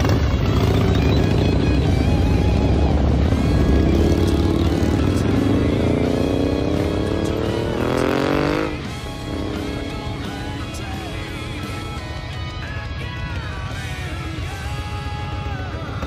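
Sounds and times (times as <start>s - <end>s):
motorcycle engine revving up: 0.0s - 12.0s
background music: 0.0s - 16.0s
motorcycles rumbling: 0.0s - 16.0s.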